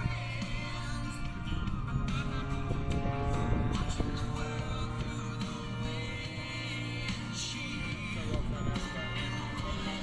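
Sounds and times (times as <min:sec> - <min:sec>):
music playing: 0:00.0 - 0:10.0.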